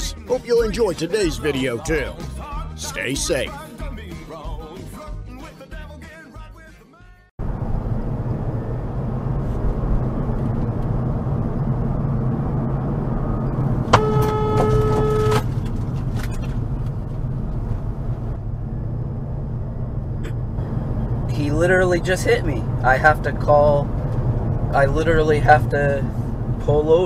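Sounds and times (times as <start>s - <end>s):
road and engine noise in car: 7.4s - 27.0s
car horn blast: 13.8s - 15.5s.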